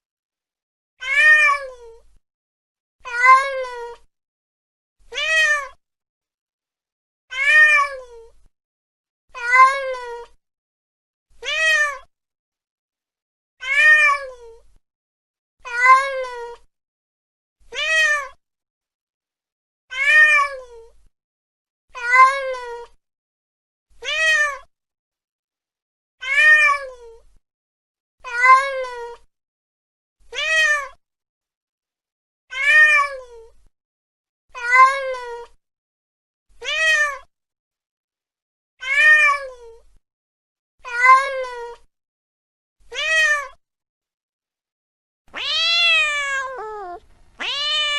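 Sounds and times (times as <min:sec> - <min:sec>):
cat meowing: 0:07.3 - 0:08.0, 0:13.6 - 0:14.3, 0:42.9 - 0:43.5, 0:45.3 - 0:47.9.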